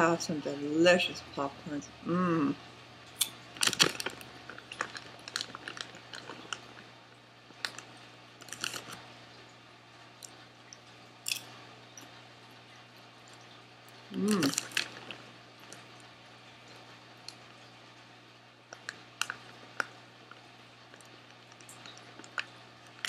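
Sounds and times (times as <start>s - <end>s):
popcorn chewing crunches: 3.2s - 6.9s, 7.5s - 9.0s, 10.2s - 12.1s, 13.3s - 17.6s, 18.7s - 23.0s
snack bag crinkling: 3.6s - 6.9s, 7.5s - 9.0s, 14.1s - 17.4s, 18.7s - 23.0s.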